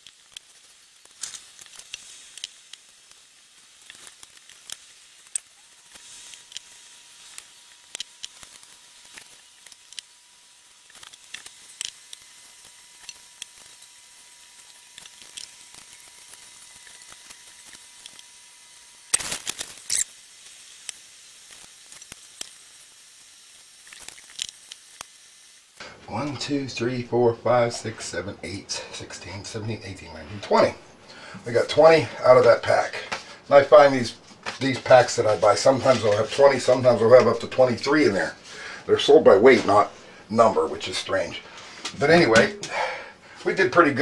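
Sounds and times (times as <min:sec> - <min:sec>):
hands rustling and tapping wrappers: 0:32.4 - 0:37.6.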